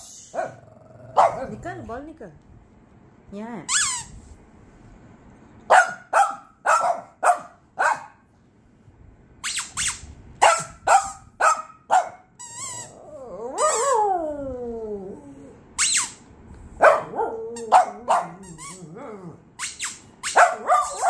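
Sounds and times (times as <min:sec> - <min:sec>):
small dogs barking: 0:00.3 - 0:01.6, 0:05.7 - 0:08.2, 0:10.4 - 0:12.3, 0:16.8 - 0:18.5, 0:20.3 - 0:21.0
dog high wavering cry: 0:09.4 - 0:14.2, 0:16.8 - 0:21.0
dog whining: 0:12.4 - 0:16.2, 0:17.0 - 0:21.0.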